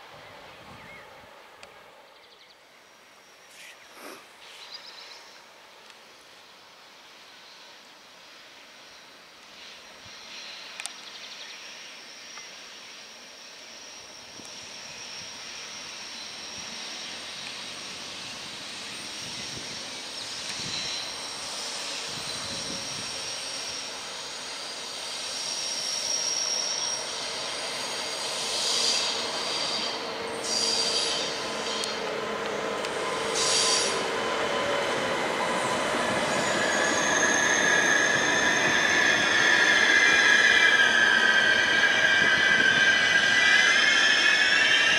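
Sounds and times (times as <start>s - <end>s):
train running noise: 2.8s - 44.9s
high wheel squeal: 11.7s - 44.9s.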